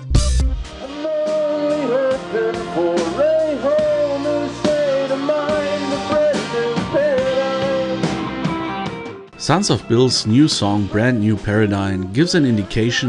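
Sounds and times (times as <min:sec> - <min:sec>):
drums: 0:00.0 - 0:11.6
bass guitar: 0:00.0 - 0:12.2
electric keyboard: 0:00.7 - 0:13.0
man singing long notes: 0:00.8 - 0:08.3.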